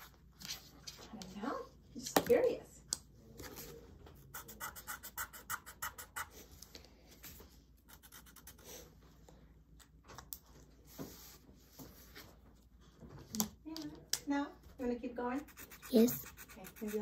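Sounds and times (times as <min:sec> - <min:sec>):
marker scribbling on paper: 0:15.4 - 0:17.0.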